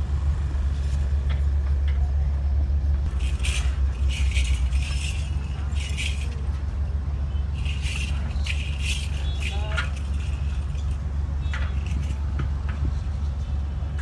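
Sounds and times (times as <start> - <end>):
engine humming: 0.0 - 14.0
scraping and scuffing: 3.1 - 6.5.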